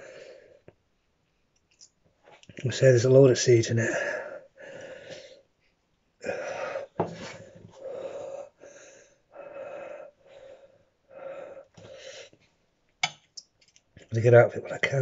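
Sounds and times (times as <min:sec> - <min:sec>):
man wheezing breaths: 0:00.0 - 0:00.7, 0:03.8 - 0:05.5, 0:06.2 - 0:12.4.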